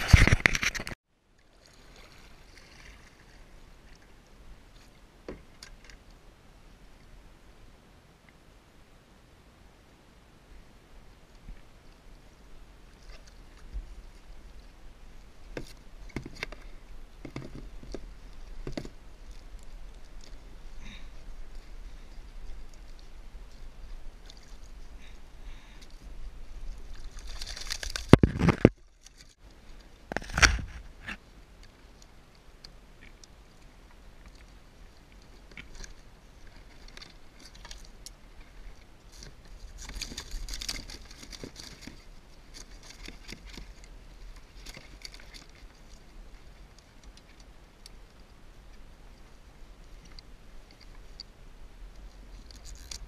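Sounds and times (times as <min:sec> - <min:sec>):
clicks and rustling: 0:00.0 - 0:01.0.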